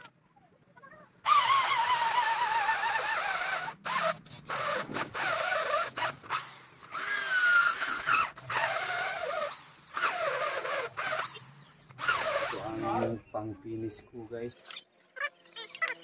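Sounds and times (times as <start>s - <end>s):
electric drill boring into wood: 1.3s - 13.1s.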